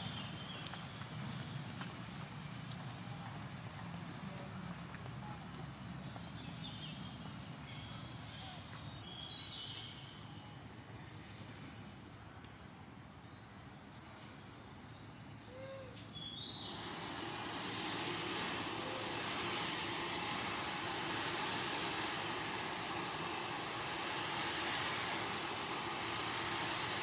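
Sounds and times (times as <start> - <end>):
broad hiss: 0.0 - 5.2, 6.3 - 27.0
steady forest hiss: 0.0 - 27.0.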